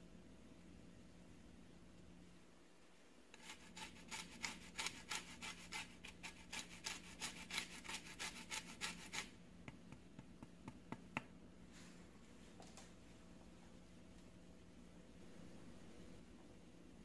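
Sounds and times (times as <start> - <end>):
zester scraping lemon peel: 3.3 - 9.3.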